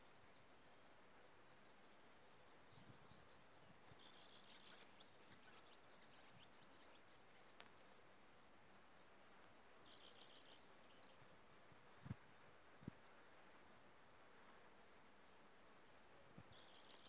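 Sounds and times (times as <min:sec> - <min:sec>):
distant small birds chirping: 0:00.0 - 0:17.0
faint click: 0:07.4 - 0:08.0, 0:08.9 - 0:09.6.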